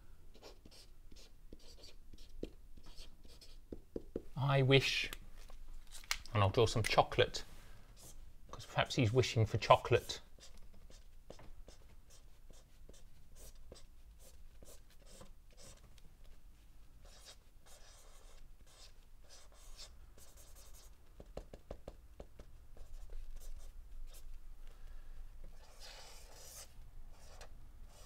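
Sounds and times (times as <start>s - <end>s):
marker scratching on paper: 0.3s - 3.8s, 8.0s - 8.2s, 10.0s - 15.8s, 17.0s - 24.2s, 25.5s - 28.0s.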